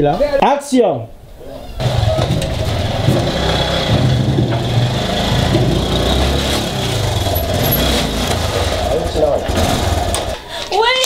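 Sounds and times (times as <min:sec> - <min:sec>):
motorcycle engine at low revs: 0:01.8 - 0:10.4.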